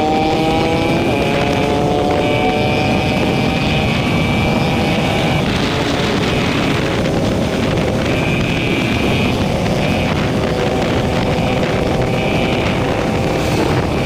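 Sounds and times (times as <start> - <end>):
motorcycle engine running: 0.0 - 14.0
wind rush on microphone: 0.0 - 14.0.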